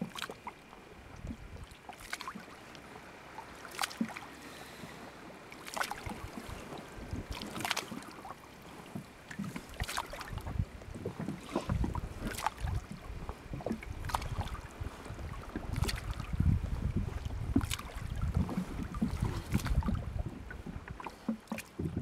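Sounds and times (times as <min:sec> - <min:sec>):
water dripping and splashing: 0:00.0 - 0:00.6, 0:01.2 - 0:02.6, 0:03.6 - 0:04.2, 0:05.5 - 0:08.3, 0:09.0 - 0:10.6, 0:11.2 - 0:13.0, 0:13.6 - 0:14.7, 0:15.3 - 0:16.4, 0:17.5 - 0:22.0
low wind rumble: 0:04.8 - 0:07.4, 0:10.1 - 0:21.0.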